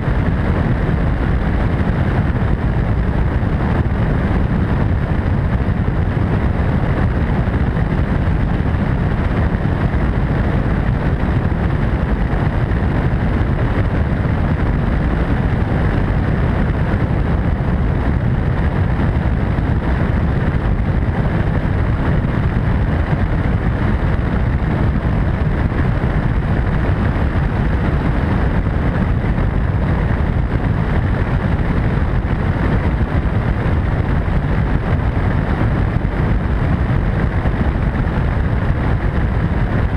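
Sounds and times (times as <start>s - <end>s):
helicopter rotor and engine rumble: 0.0s - 39.9s
wind over microphone: 0.0s - 39.9s.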